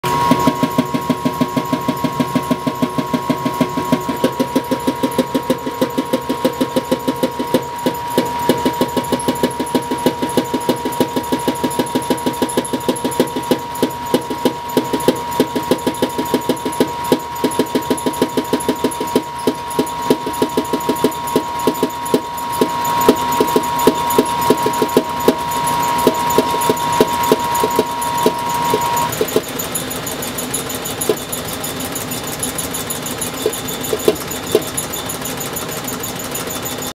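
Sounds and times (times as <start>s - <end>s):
high-pitched whine: 0.0s - 36.9s.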